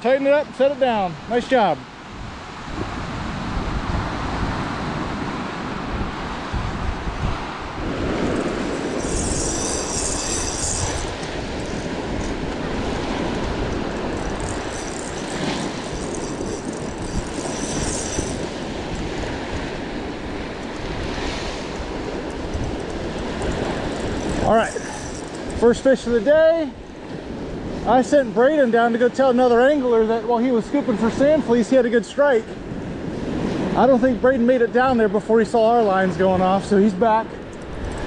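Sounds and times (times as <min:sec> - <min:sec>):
wind buffeting microphone: 0:02.0 - 0:27.9, 0:37.2 - 0:38.0
faint high-pitched whir: 0:08.3 - 0:12.4, 0:14.2 - 0:18.7.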